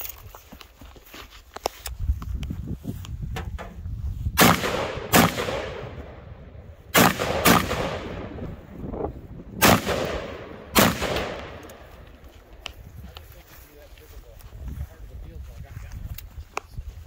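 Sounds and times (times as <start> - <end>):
rifle shots echoing: 4.4 - 8.7, 9.6 - 12.3.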